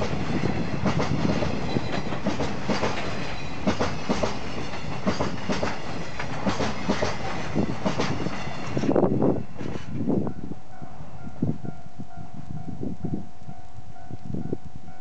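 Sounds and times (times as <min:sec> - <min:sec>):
train wheels clacking over rail joints: 0:00.0 - 0:10.0
freight train rumble: 0:00.0 - 0:15.0.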